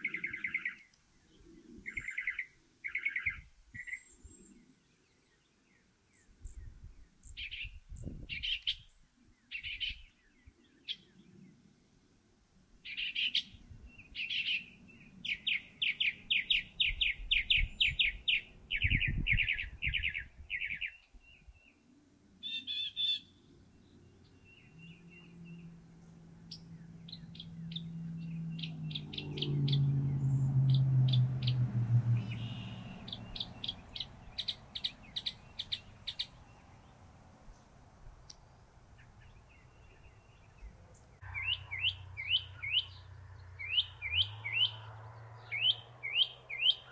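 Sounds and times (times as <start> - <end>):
mockingbird singing: 0.0 - 4.6, 6.2 - 11.2, 12.8 - 21.8, 22.4 - 36.9, 38.4 - 46.9
low drone falling in pitch: 24.5 - 34.9.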